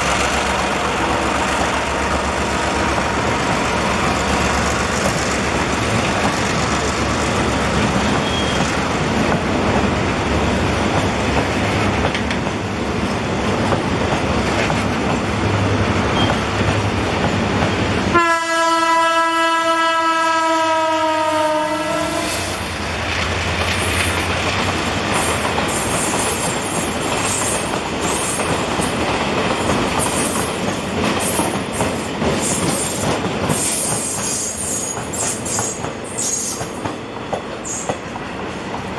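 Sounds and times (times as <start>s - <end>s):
train wheels clacking on rails: 0.0s - 18.0s, 23.0s - 38.9s
wheels squealing: 8.0s - 8.8s
train horn: 18.1s - 22.6s.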